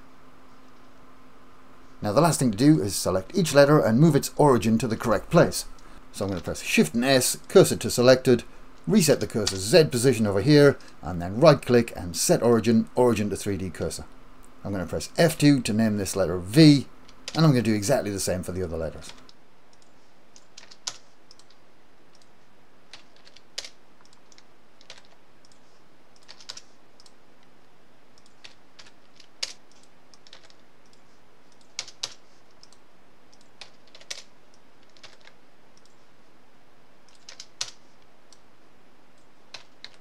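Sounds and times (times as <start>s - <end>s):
faint room hiss: 0.0s - 40.0s
keyboard and mouse clicks: 19.1s - 22.3s, 22.9s - 25.6s, 26.2s - 27.5s, 28.2s - 36.0s, 37.1s - 38.4s, 39.2s - 40.0s.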